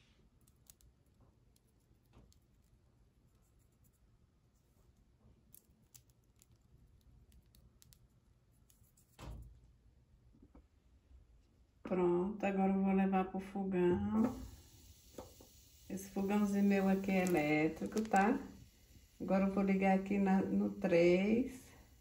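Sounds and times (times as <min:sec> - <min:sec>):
seeds ticking onto batter: 0:15.2 - 0:20.8.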